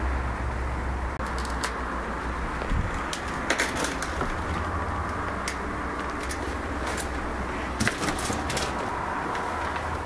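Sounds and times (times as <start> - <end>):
camera handling rumble and hiss: 1.2 - 1.8.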